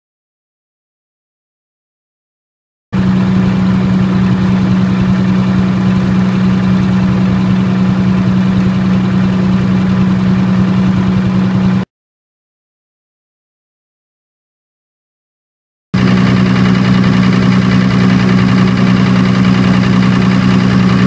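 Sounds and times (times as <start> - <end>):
diesel generator humming: 3.0 - 11.9, 16.0 - 21.0.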